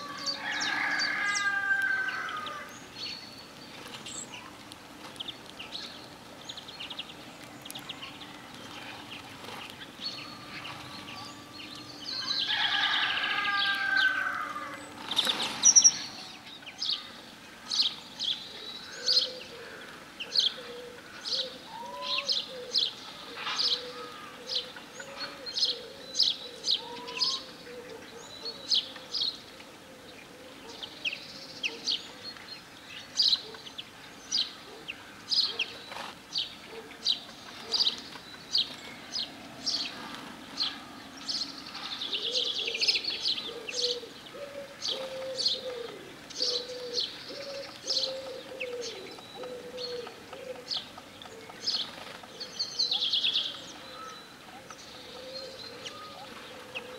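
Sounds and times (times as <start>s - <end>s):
small songbirds chirping: 0.0s - 56.9s
low wavering cooing: 19.0s - 29.1s, 41.8s - 53.9s, 54.5s - 56.9s.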